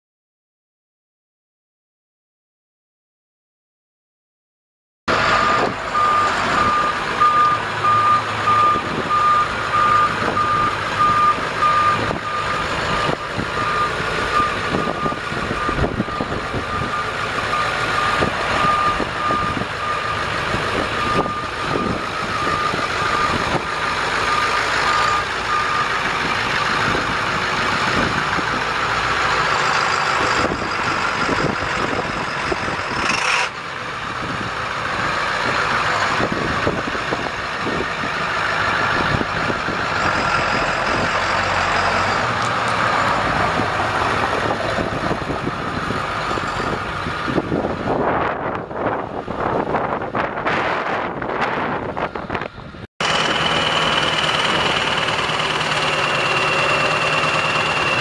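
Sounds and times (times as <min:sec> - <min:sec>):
diesel truck engine running: 0:05.1 - 0:58.0.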